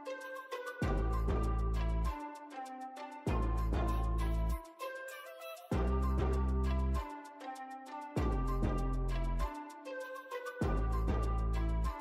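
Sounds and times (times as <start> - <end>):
background music with beat: 0.0 - 12.0
heavy bass: 0.8 - 2.1, 3.3 - 4.6, 5.8 - 7.0, 8.2 - 9.5, 10.6 - 11.9.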